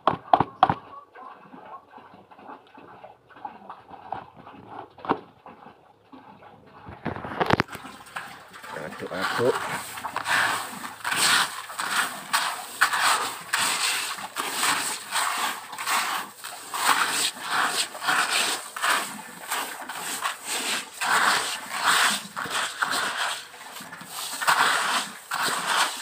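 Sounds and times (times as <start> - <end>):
grains swishing in a plastic basin: 7.4 - 26.0.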